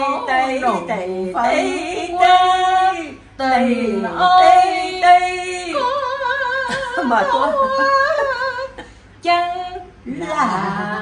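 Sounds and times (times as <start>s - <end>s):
women singing unaccompanied: 0.0s - 11.0s.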